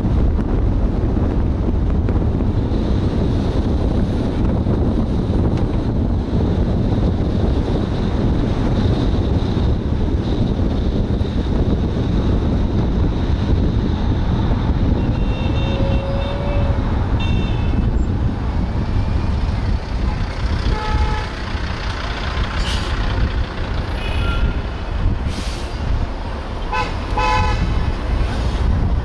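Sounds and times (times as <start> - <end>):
car wind and road rumble: 0.0 - 29.0
car horn toots: 15.0 - 17.8, 20.7 - 21.4, 23.9 - 24.6, 26.7 - 27.7.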